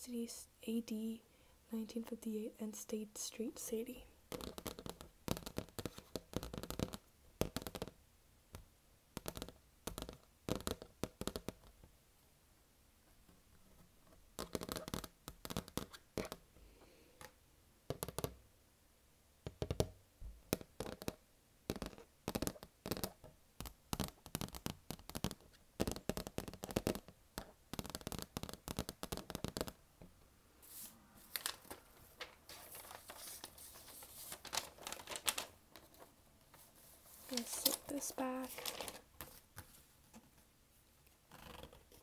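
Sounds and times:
fingernails tapping on a record: 4.3 - 11.8, 14.4 - 16.4, 17.9 - 18.4, 19.4 - 30.1
scratchy rustle: 30.6 - 39.9.

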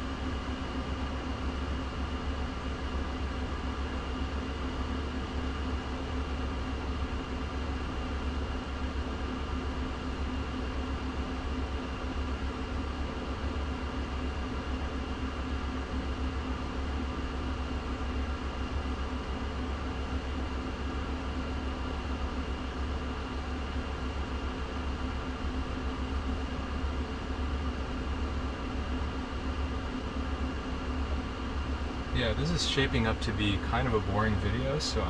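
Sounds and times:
car cabin fan hiss: 32.2 - 35.0.

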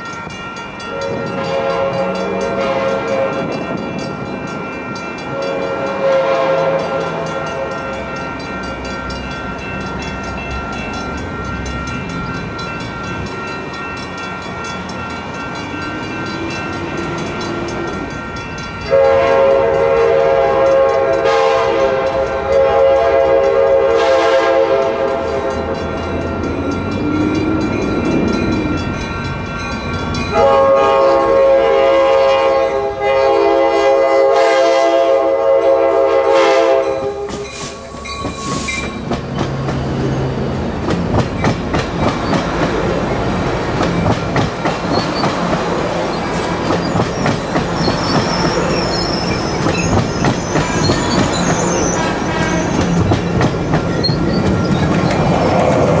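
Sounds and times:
wheels clattering on rails: 0.0 - 31.2, 36.8 - 56.0
train rumbling past: 0.0 - 56.0
train air horn blasts: 0.8 - 3.7, 5.3 - 8.0, 18.8 - 25.8, 30.3 - 39.0.

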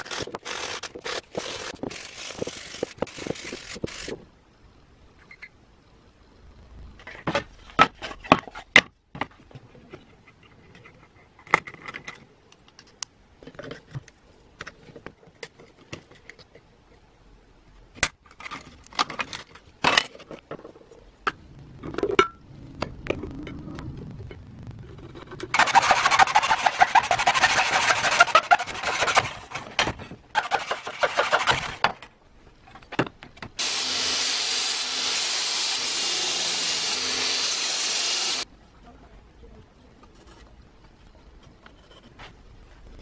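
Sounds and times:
hand saw cutting wood: 25.6 - 29.7, 30.4 - 31.8, 33.6 - 38.4.

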